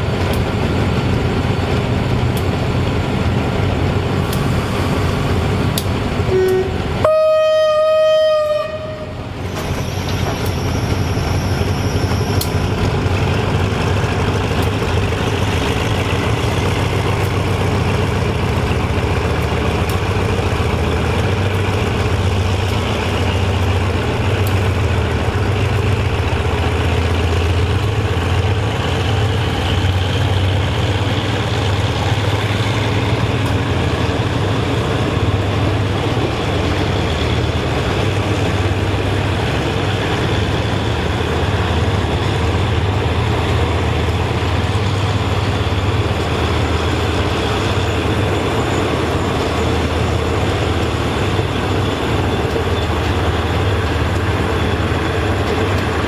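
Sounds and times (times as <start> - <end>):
locomotive engine drone: 0.0 - 56.0
short horn toot: 6.3 - 9.2
locomotive horn blast: 6.3 - 9.3.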